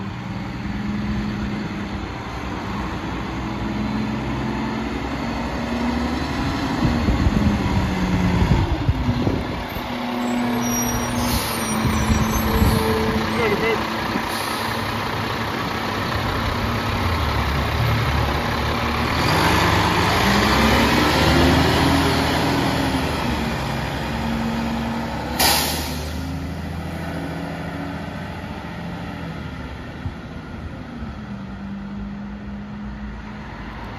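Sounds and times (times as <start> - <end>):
truck engine accelerating: 0.0 - 33.9
sharp air hiss: 25.4 - 26.2.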